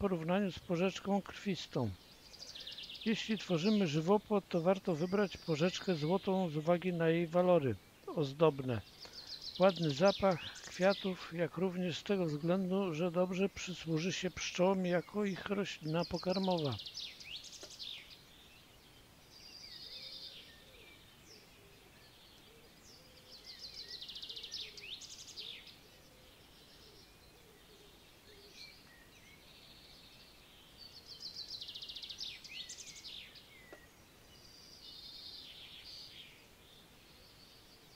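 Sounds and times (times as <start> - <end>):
songbird trilling: 0.0 - 18.5
faint outdoor background noise: 0.0 - 37.9.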